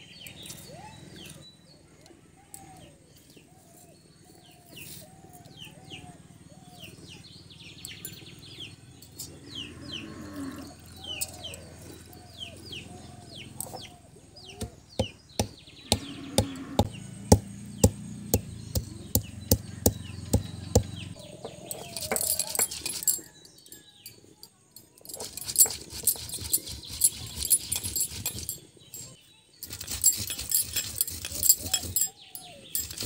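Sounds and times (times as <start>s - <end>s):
birds chirping: 0.0s - 33.0s
stone muller knocking on seeds: 14.6s - 22.9s
stone rubbing on stone: 20.7s - 23.3s, 25.0s - 33.0s.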